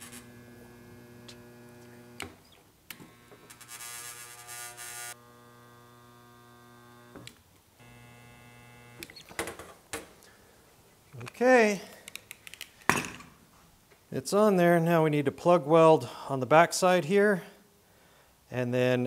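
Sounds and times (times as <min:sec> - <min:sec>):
spot welder buzzing: 0:00.0 - 0:09.4.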